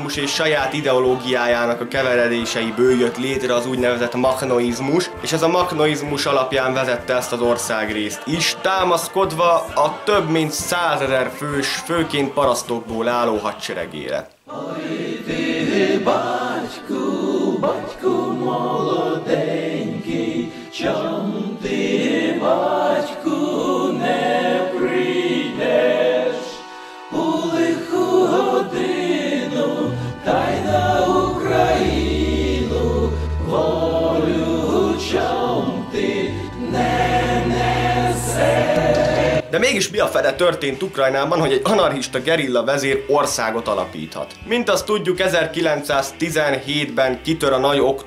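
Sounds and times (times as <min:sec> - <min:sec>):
choir singing: 0:00.0 - 0:12.3, 0:14.5 - 0:39.5
deep bass notes: 0:29.8 - 0:39.6.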